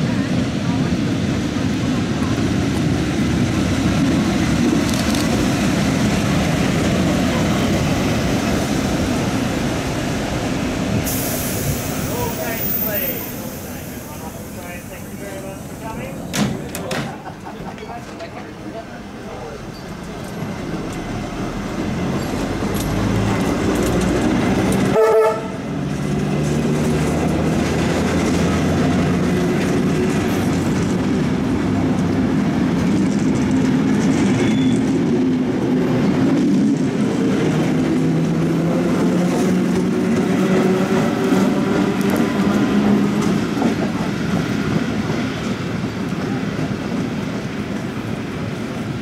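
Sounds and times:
train horn blast: 0:24.9 - 0:25.6.

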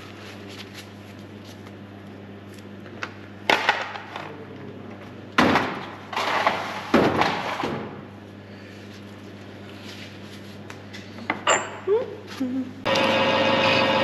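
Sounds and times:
low machine hum: 0:00.0 - 0:14.0
objects knocking and clattering: 0:05.4 - 0:08.0.

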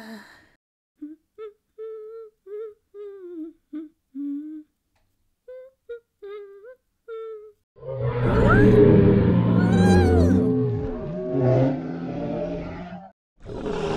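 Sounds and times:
person humming a bouncy tune: 0:01.0 - 0:04.8, 0:05.5 - 0:07.6.

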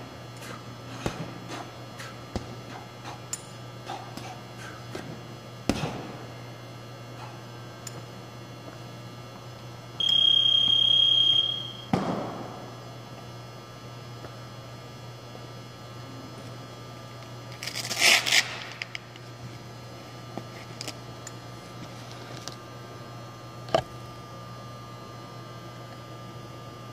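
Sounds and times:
low steady hum: 0:00.0 - 0:26.9
electronic buzzer high tone: 0:10.0 - 0:11.9.

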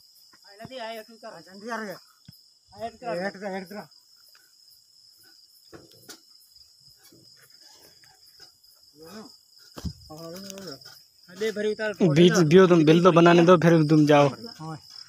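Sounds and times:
crickets chirping: 0:00.0 - 0:15.0
voices: 0:00.4 - 0:04.4, 0:08.9 - 0:15.0.

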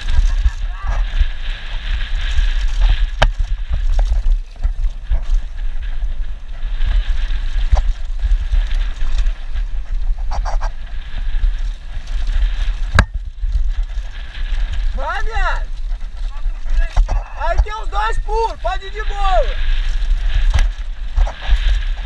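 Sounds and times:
tyres on dirt trail: 0:00.0 - 0:22.0
wind buffeting microphone: 0:00.0 - 0:22.0
bike knocking over bumps: 0:02.3 - 0:05.4, 0:12.3 - 0:14.8.

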